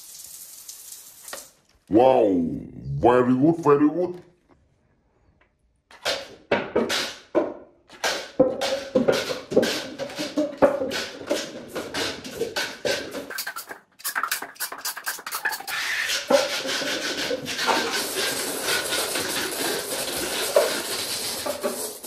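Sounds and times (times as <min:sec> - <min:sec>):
paper cups clattering down: 0:05.9 - 0:22.0.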